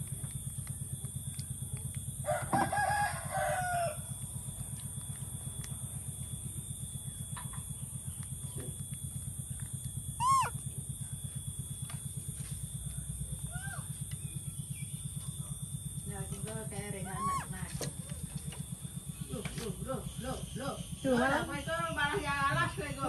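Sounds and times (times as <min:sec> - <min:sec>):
low pulsing hum: 0:00.0 - 0:23.0
rooster crowing: 0:02.2 - 0:04.2, 0:10.2 - 0:10.5.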